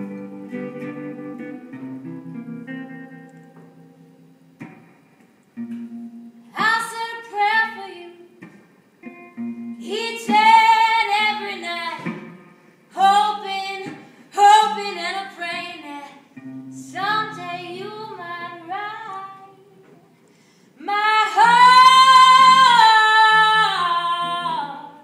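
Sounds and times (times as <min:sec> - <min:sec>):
acoustic guitar: 0:00.0 - 0:25.0
woman singing: 0:06.5 - 0:08.4, 0:09.8 - 0:12.2, 0:12.9 - 0:19.9, 0:20.8 - 0:25.0.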